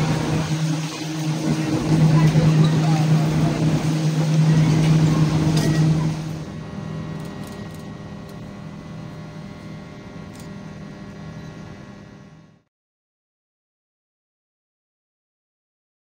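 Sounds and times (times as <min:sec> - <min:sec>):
train humming at platform: 0:00.0 - 0:12.6.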